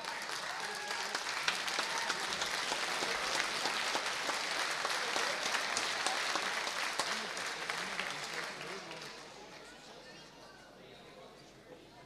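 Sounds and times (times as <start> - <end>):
crowd applauding: 0.0 - 9.3.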